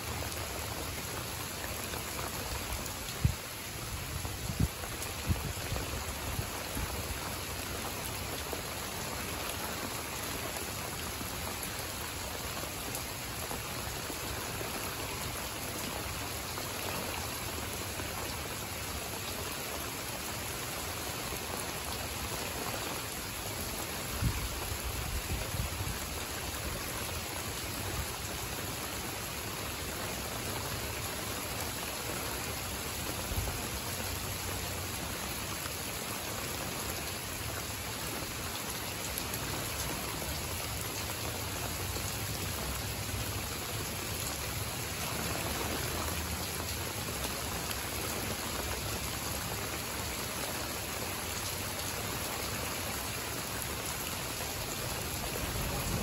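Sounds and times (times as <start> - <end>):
steady rain hiss: 0.0 - 56.0
rain drop hits: 54.2 - 56.0.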